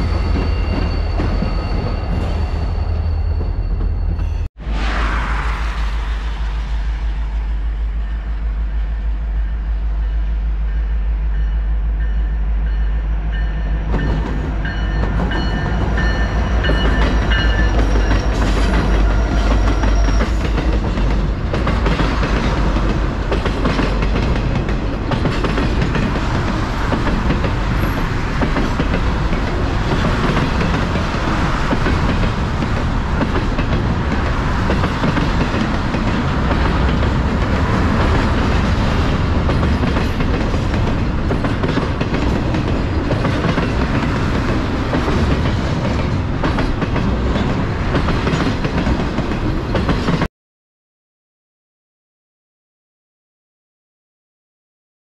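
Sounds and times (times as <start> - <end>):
diesel locomotives rumbling: 0.0 - 50.3
rail clatter: 13.3 - 50.3.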